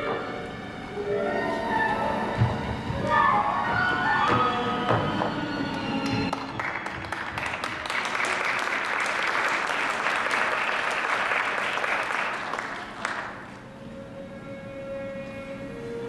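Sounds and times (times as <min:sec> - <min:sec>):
audience applauding: 0:05.7 - 0:13.6.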